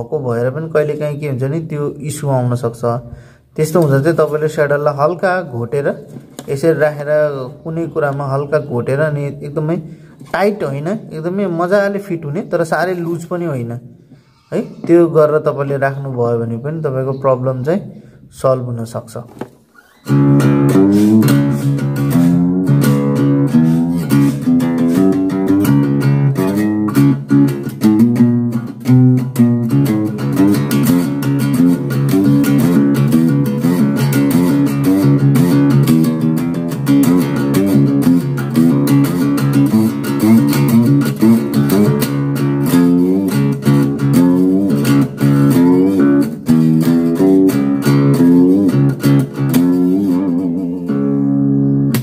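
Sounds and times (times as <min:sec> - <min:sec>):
plucked guitar notes: 0:19.8 - 0:52.0
bass line: 0:20.1 - 0:52.0.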